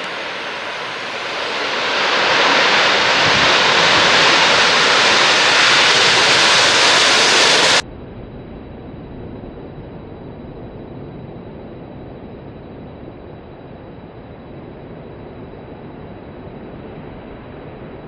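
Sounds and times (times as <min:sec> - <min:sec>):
jet engine roar: 0:00.0 - 0:07.9
wind on the microphone: 0:00.0 - 0:18.0.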